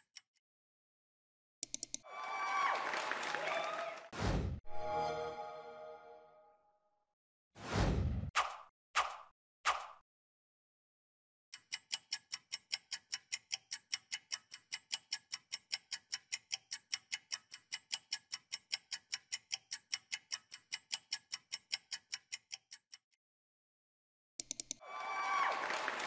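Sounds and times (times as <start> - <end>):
rapid clock ticking: 11.6 - 23.1.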